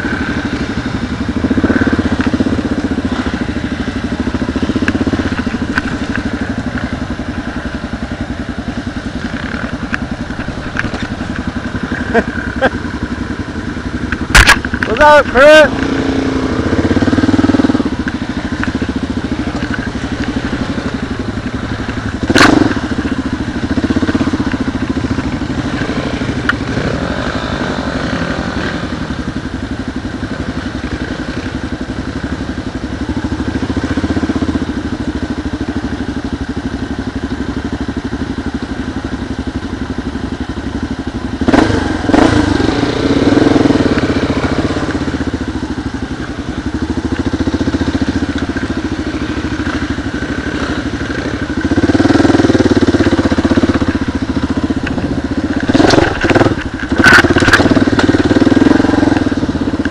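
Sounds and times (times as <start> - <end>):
motorcycle jolting over bumps: 0.0 - 12.8, 13.8 - 29.0, 40.5 - 59.9
motorcycle engine at low revs: 0.0 - 59.9.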